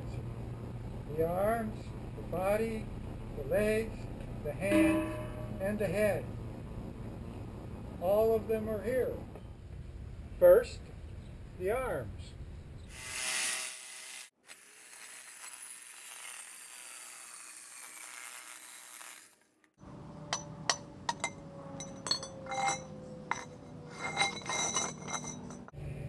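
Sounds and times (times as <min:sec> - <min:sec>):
steady low hum: 0:00.0 - 0:11.6
metal tubing clanking on concrete: 0:20.3 - 0:25.8.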